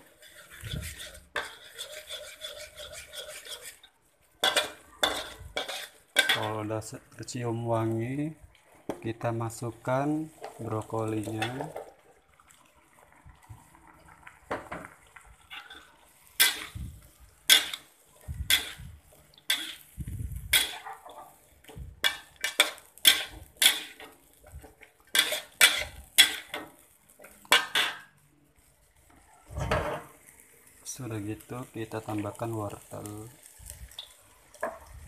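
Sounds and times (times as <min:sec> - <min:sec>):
metal spoon scraping a pan: 0:00.0 - 0:06.7, 0:10.2 - 0:11.9, 0:15.4 - 0:28.2, 0:29.0 - 0:30.5.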